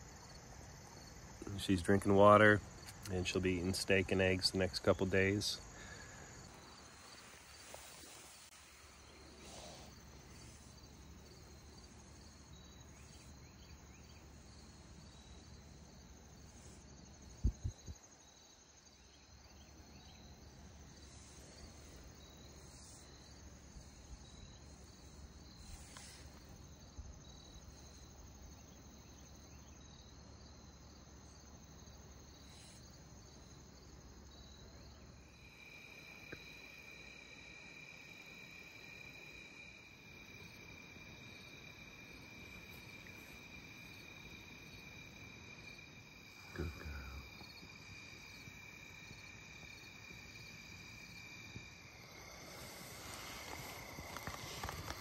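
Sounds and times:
crickets chirping: 0.0 - 55.0.

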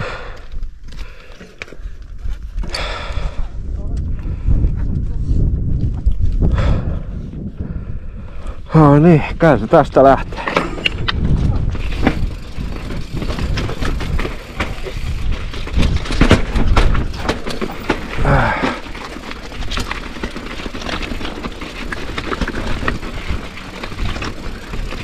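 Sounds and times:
bike clacking and rattling: 9.5 - 25.0
tyres rumbling on rock: 9.7 - 25.0.

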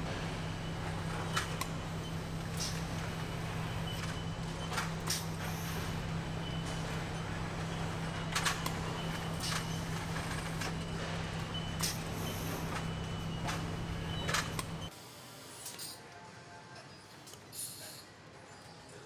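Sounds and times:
low machinery hum: 0.0 - 14.9.

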